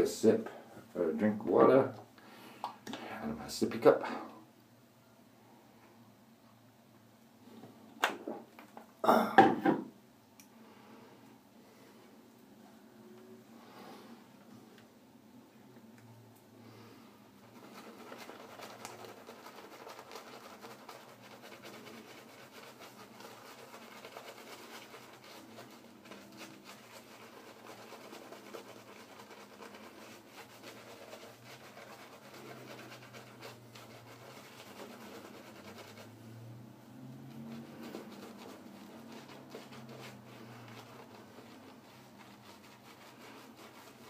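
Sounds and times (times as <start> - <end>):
shaving brush scrubbing skin: 17.4 - 36.4, 37.0 - 44.0.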